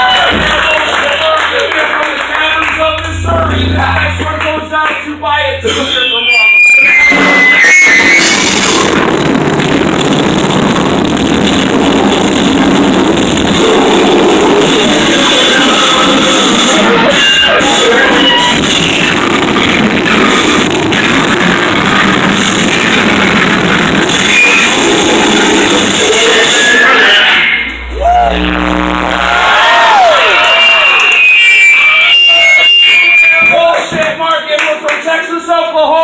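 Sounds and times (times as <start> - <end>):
dense noise music: 0.2 - 17.0, 18.6 - 30.5
short high tones: 2.3 - 9.1, 27.0 - 33.7.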